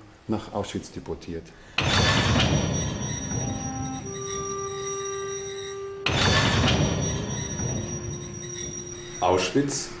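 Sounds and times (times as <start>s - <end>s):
train wheels squealing: 2.7s - 10.0s.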